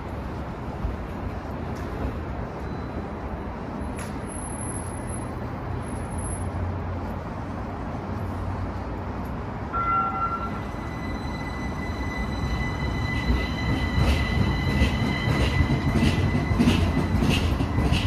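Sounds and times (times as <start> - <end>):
streetcar rumbling past: 0.0 - 18.0
high-pitched squeal: 9.8 - 18.0.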